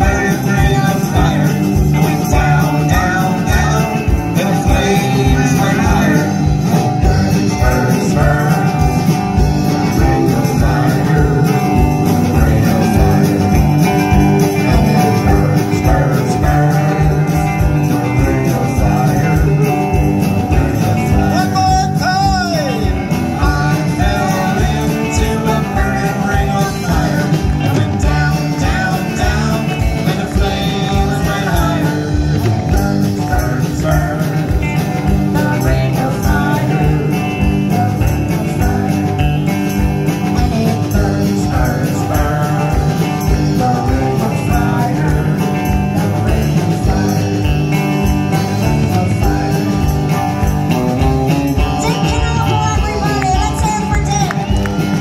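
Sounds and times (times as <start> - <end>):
live rock band playing: 0.0 - 55.0
vocals singing: 0.0 - 55.0.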